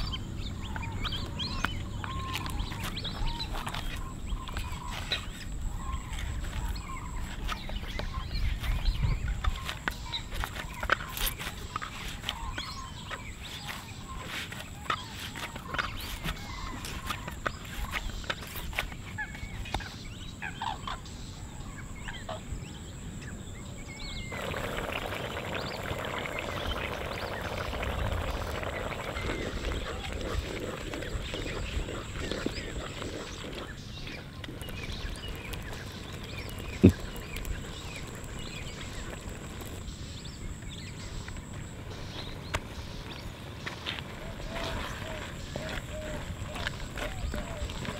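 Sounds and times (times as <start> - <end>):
curry bubbling and popping: 24.3 - 47.9.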